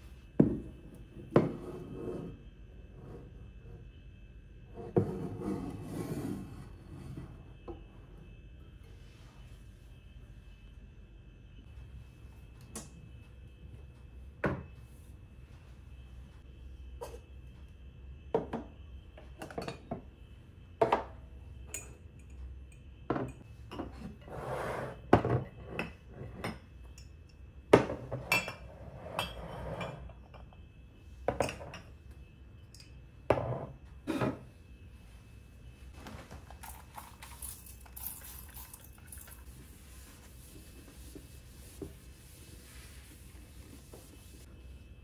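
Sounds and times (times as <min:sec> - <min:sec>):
glassware and mugs clinking: 0:27.8 - 0:30.6, 0:31.3 - 0:31.9.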